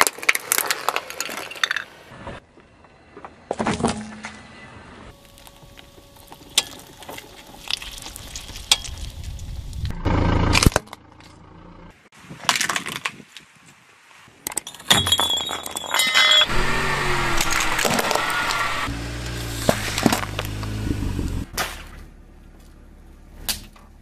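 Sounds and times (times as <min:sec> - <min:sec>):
tyre crushing objects: 0:16.6 - 0:20.8.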